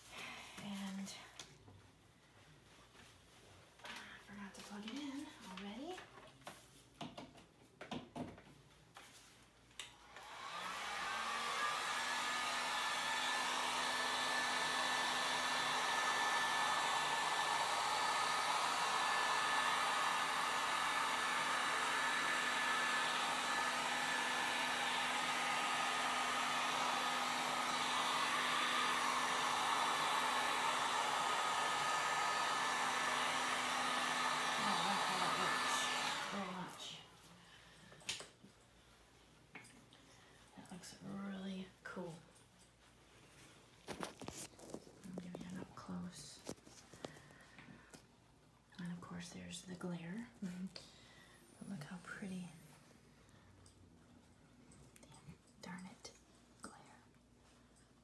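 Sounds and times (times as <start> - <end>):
heat gun blower humming: 10.1 - 37.0.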